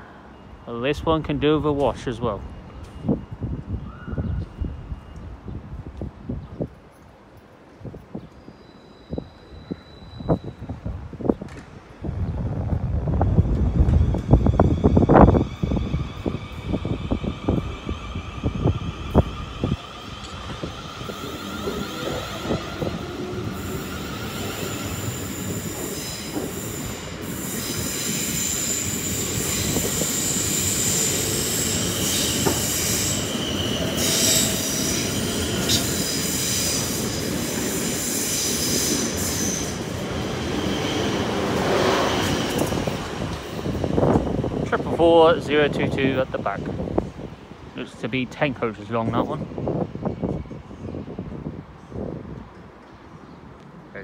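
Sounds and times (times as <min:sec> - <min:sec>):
train wheels squealing: 0:02.0 - 0:05.5, 0:08.2 - 0:11.0, 0:13.2 - 0:44.4
train rumble: 0:10.2 - 0:52.9.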